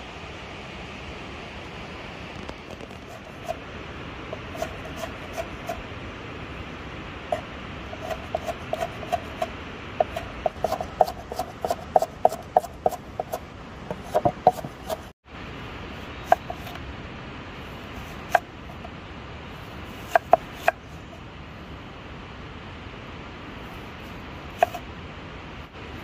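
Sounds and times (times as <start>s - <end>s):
cleaver chopping on wooden board: 3.0s - 3.6s, 4.4s - 5.8s, 7.3s - 15.1s, 16.3s - 16.8s, 20.0s - 20.8s.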